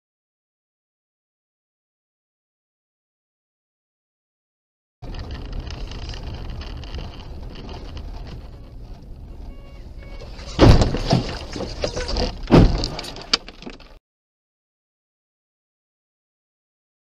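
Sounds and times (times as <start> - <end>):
road and engine rumble: 5.0 - 14.0
loud crashing impacts: 10.2 - 13.3.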